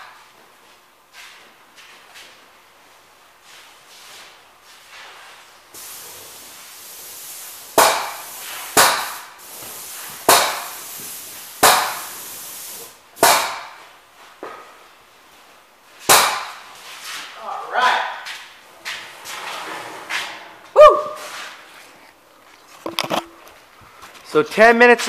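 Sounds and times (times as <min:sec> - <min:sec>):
loud hissing spray bursts: 0:05.7 - 0:13.8
paint sprayer steady hiss: 0:05.7 - 0:13.8.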